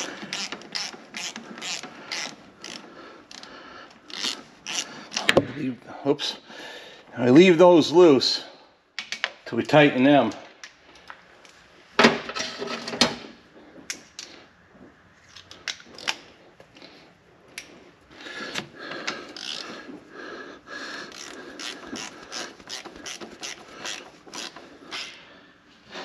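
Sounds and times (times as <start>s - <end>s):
ratchet wrench clicking: 0.0s - 3.5s, 4.1s - 5.3s, 19.3s - 19.7s, 21.0s - 25.2s.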